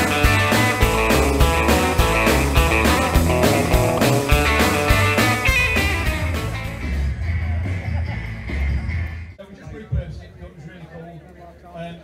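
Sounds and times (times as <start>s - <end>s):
rockabilly guitar instrumental: 0.0s - 7.2s.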